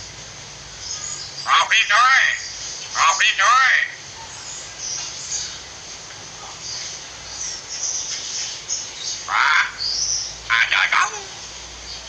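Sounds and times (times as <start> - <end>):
myna harsh call: 10.5 - 11.5.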